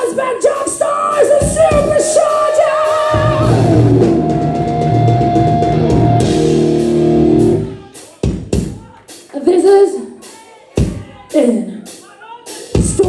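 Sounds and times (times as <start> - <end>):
electric guitars: 2.6 - 7.8
drum hits: 2.9 - 9.0.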